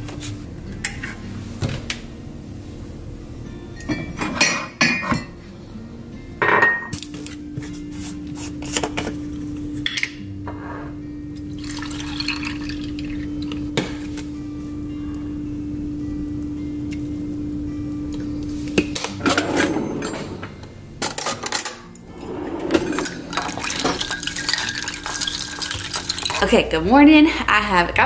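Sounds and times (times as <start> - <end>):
dishware clattering: 3.9 - 5.4, 6.4 - 6.9, 19.2 - 26.5
coffee pouring into mug: 11.5 - 14.0, 23.1 - 26.5.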